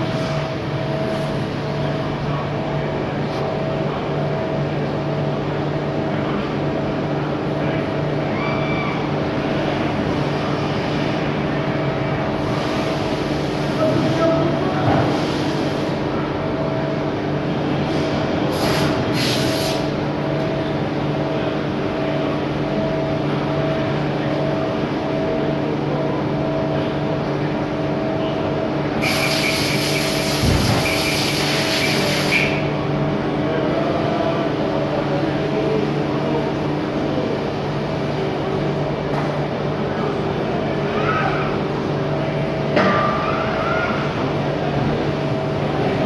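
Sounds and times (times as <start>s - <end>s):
machinery humming: 0.0s - 46.0s
air hissing: 18.5s - 19.9s, 29.0s - 32.7s.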